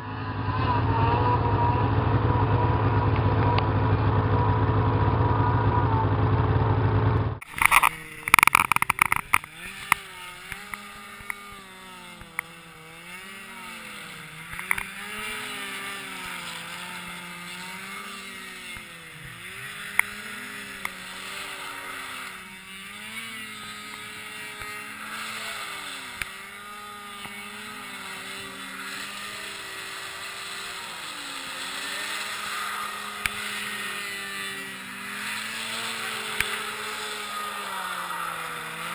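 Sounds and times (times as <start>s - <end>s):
loud low drone: 0.0s - 8.3s
snowmobile engine revving: 0.0s - 38.9s.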